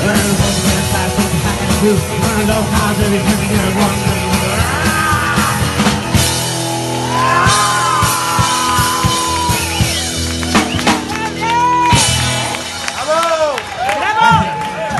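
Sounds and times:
rockabilly band playing: 0.0 - 14.9
singer whooping: 4.4 - 5.8, 6.9 - 10.6.

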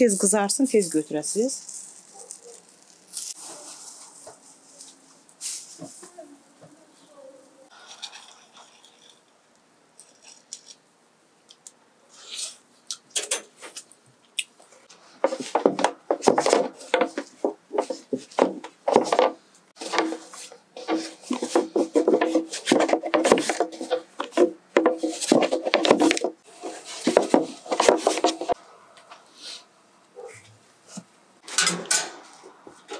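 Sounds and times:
rolling pin rolling on dough: 15.2 - 28.6.

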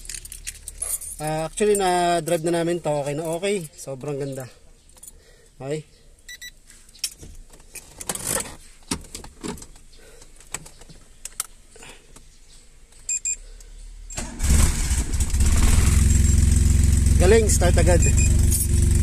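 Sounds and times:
keys jangling and clicking: 0.0 - 5.2
short high beeps: 13.1 - 13.4, 17.9 - 18.7
car engine starting and running: 13.2 - 19.0.

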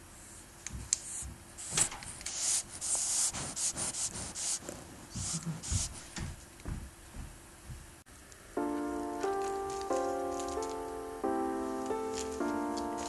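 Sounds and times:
dog sniffing at microphone: 1.0 - 6.2.

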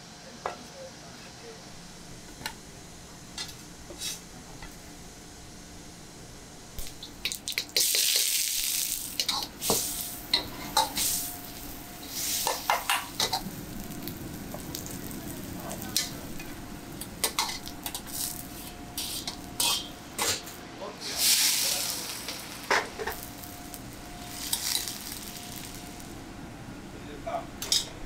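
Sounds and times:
onions sizzling in a wok: 6.8 - 26.4
ladle scraping a wok: 17.2 - 20.5
bursts of hissing: 21.1 - 26.1.

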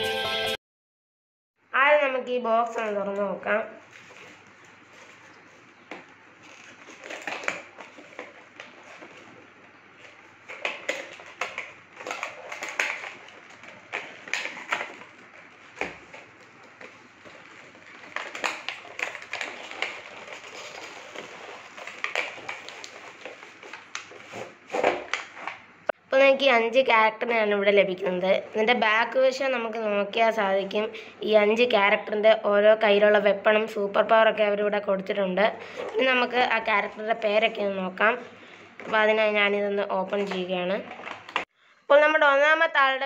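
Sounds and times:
packing tape crackling: 3.8 - 25.7, 40.2 - 41.5.

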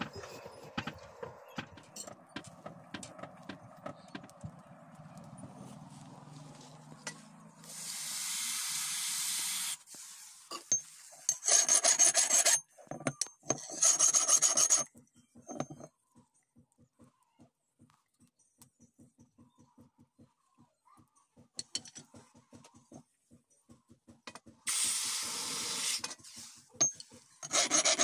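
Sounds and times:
file rasping on metal: 11.3 - 12.7, 13.5 - 14.9, 27.4 - 28.0.

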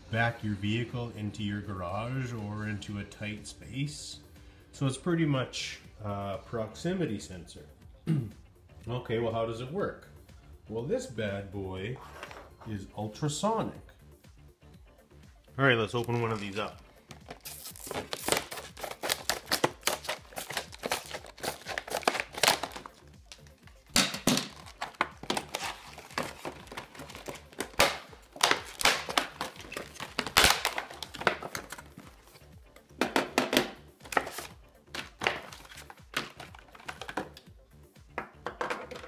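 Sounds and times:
plastic blister pack crinkling: 16.0 - 32.4, 34.0 - 37.4
clicks and knocks on tile floor: 38.4 - 39.0.

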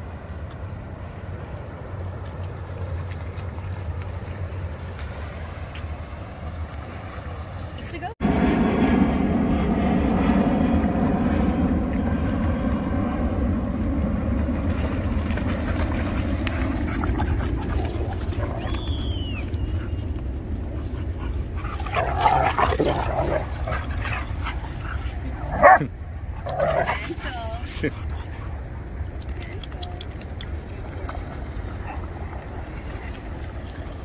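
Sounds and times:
water splashing: 14.5 - 20.0, 20.6 - 34.0
dogs growling and barking: 16.5 - 18.8, 20.8 - 27.2.

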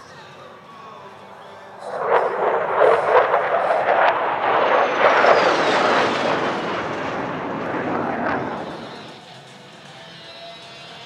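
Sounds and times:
fighter jet flying past low: 1.4 - 9.3.

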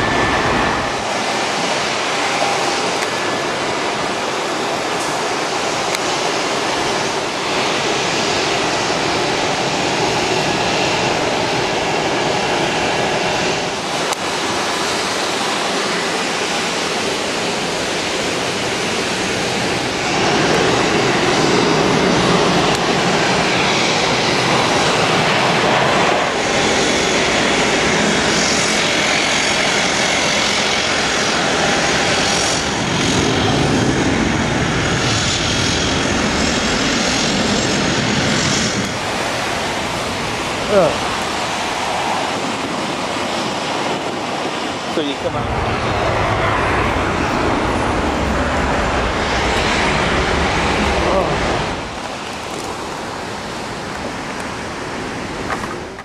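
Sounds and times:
jet engines roaring at takeoff: 0.0 - 56.0.

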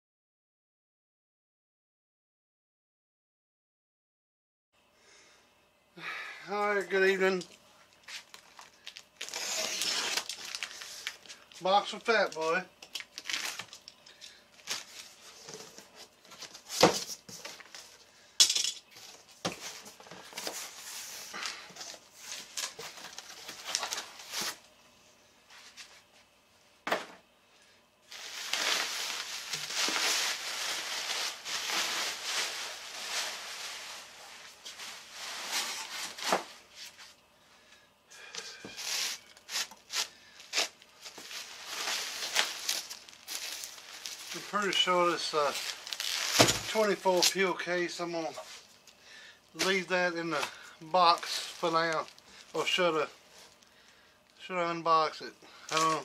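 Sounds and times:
packing peanuts rustling: 6.8 - 18.1, 19.0 - 24.6, 28.1 - 37.0, 38.8 - 54.0, 55.6 - 56.0
bubble wrap crinkling: 6.9 - 18.1, 19.0 - 24.6, 28.1 - 37.2, 38.8 - 54.4, 55.7 - 56.0
cardboard box crackling and tearing: 9.2 - 10.8.

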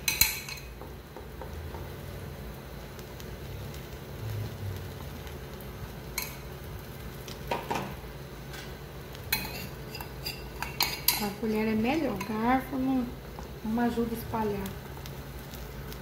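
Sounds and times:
spoon scraping batter in a pan: 9.3 - 11.2.

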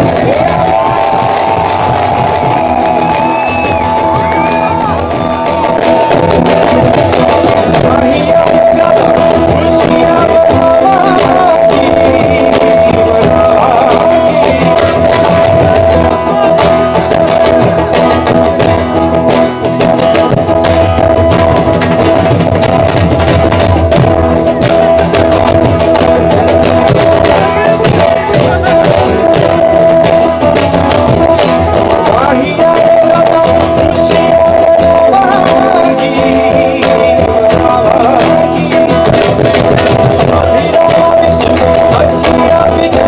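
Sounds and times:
person singing: 0.0 - 18.8, 25.8 - 43.0
dhol drum beating: 0.0 - 43.0
electric guitar: 0.0 - 43.0
strummed acoustic guitar: 0.0 - 43.0.

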